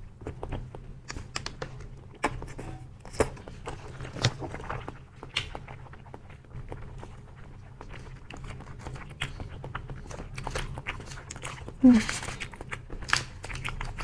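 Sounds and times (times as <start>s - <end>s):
wet mouth smacks and chewing: 3.1s - 14.0s.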